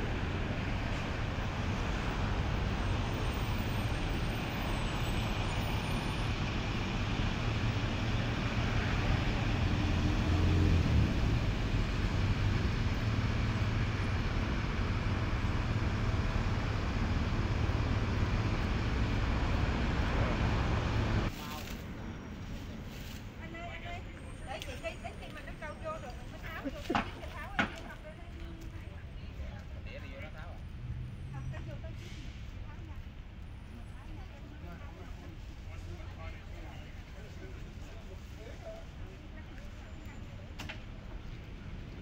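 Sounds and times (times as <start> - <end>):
road traffic rumble: 0.0 - 42.0
vehicle passing: 6.3 - 21.3.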